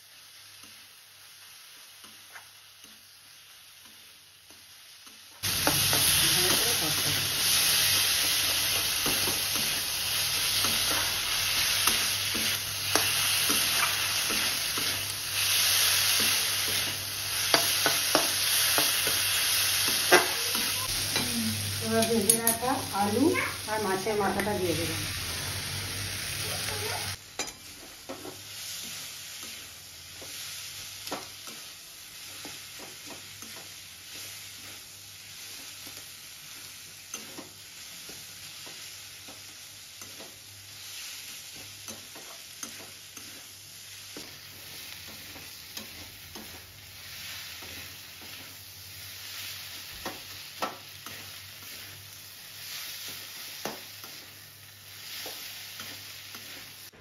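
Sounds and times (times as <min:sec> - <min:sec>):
food sizzling in a pan: 0:00.0 - 0:57.0
spatula scraping a pan: 0:40.0 - 0:50.3, 0:51.0 - 0:56.9.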